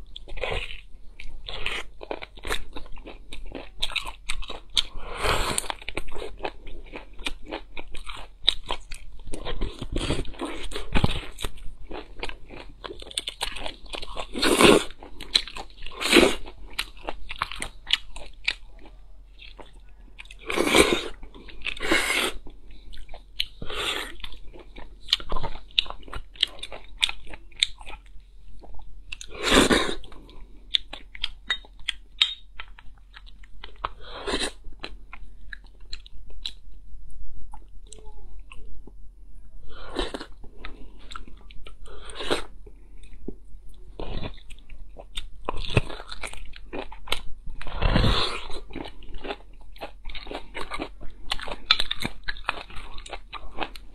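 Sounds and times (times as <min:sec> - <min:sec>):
person chewing: 0:00.0 - 0:36.7, 0:39.7 - 0:53.9.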